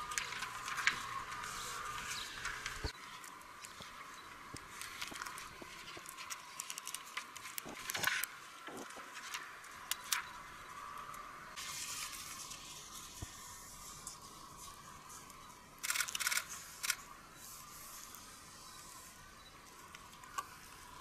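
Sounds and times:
paper and tape crinkling: 0.0 - 3.9, 4.6 - 10.2
tape being pulled hiss: 11.6 - 19.2.

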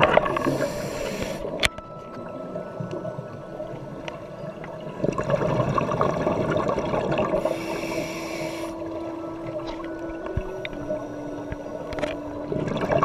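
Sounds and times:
regulator hiss: 0.0 - 1.6, 7.4 - 9.0
bubbles gurgling underwater: 2.2 - 7.5, 12.3 - 13.0.

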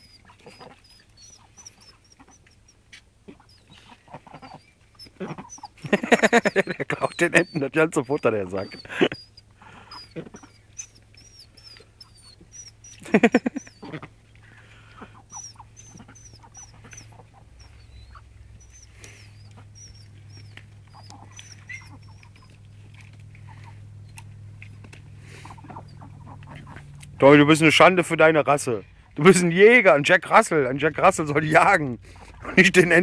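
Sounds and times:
loud animal call: 0.0 - 22.7, 25.1 - 27.0
pecking and eating clicks: 0.0 - 27.2.

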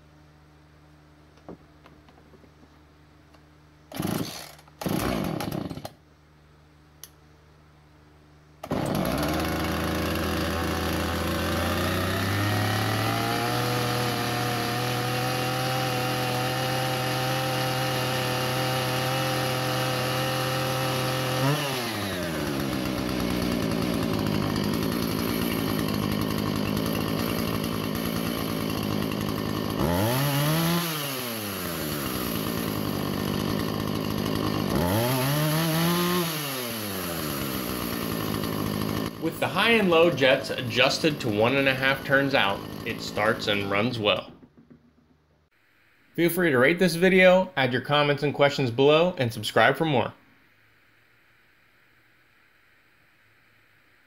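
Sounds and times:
chainsaw engine running: 3.9 - 6.0, 8.6 - 45.0.

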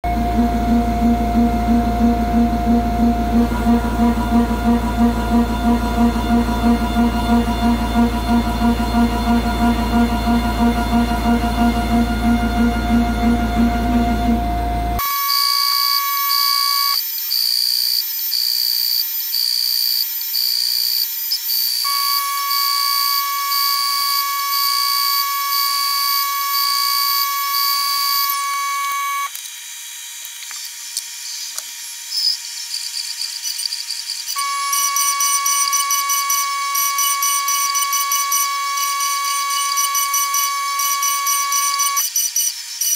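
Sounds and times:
high-pitched machine whine: 0.0 - 42.9.

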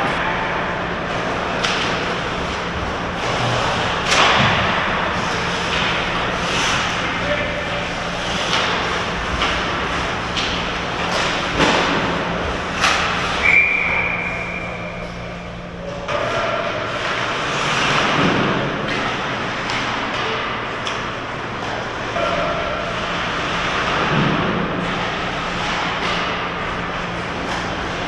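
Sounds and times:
low steady hum: 0.0 - 28.0
stick hitting puck: 1.6 - 2.1, 3.2 - 12.2, 12.8 - 14.2
skate blades scraping ice: 5.2 - 7.0.

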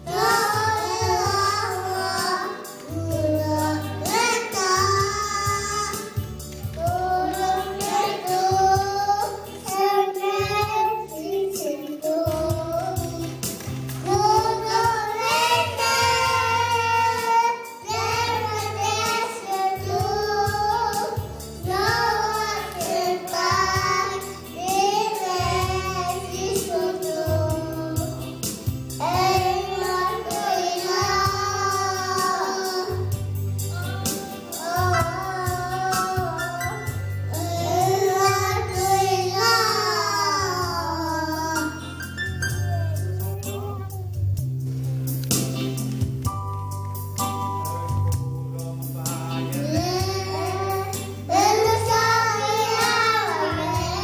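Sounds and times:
girls singing into microphones: 0.0 - 5.9, 6.7 - 13.3, 14.1 - 28.2, 29.0 - 33.1, 33.8 - 41.7, 49.6 - 54.0
electronic keyboard with bass line: 34.8 - 54.0.

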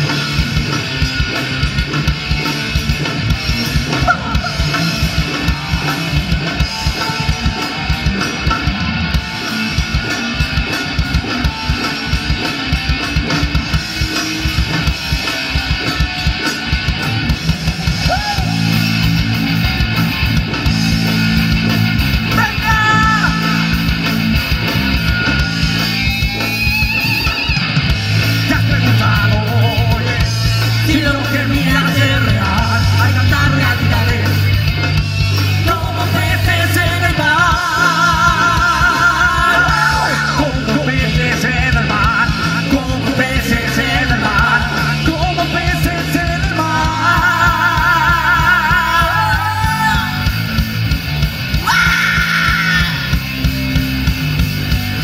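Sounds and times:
heavy metal band playing: 0.0 - 55.0
sung and yelled vocals: 3.5 - 8.7, 17.2 - 20.0, 22.2 - 24.0, 28.2 - 50.6, 51.5 - 53.4.

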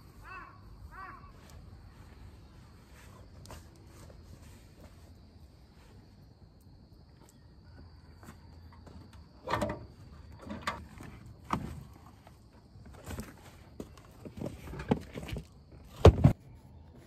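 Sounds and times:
plastic box knocking and scraping: 12.9 - 16.4.

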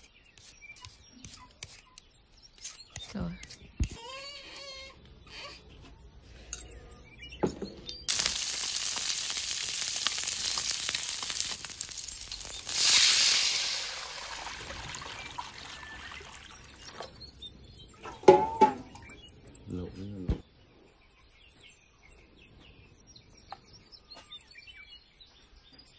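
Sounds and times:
food sizzling in hot oil: 8.1 - 16.9
water hissing in hot wok: 8.1 - 16.9.

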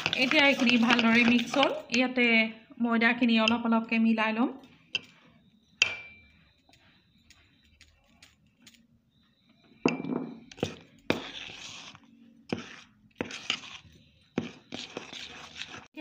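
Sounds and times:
flour rustling scrape: 0.0 - 1.8, 10.6 - 15.9
metal spoon clinking on bowl: 3.4 - 3.7, 5.8 - 6.4.

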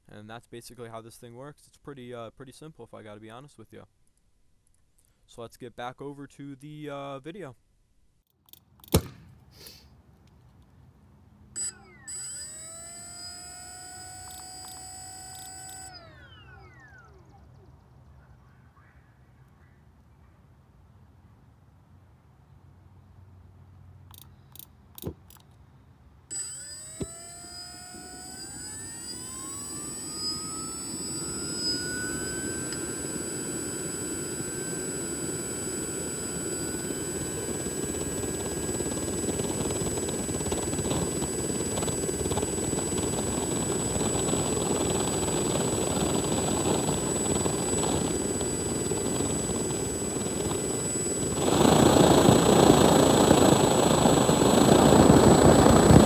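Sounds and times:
clicks: 11.6 - 16.2, 26.3 - 33.2
compressor whine rising in pitch: 11.6 - 17.4, 26.3 - 56.0
jet engine roar: 26.3 - 56.0.

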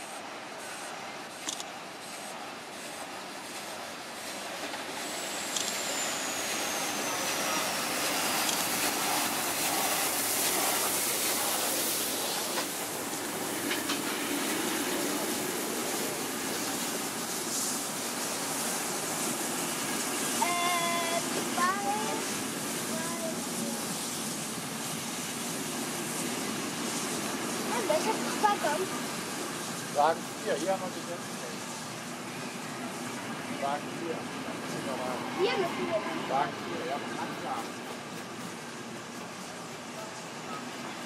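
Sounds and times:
steam locomotive rolling past: 0.0 - 41.0.

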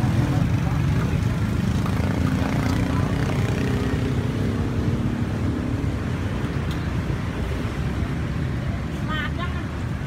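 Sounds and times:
outdoor street noise: 0.0 - 10.0.

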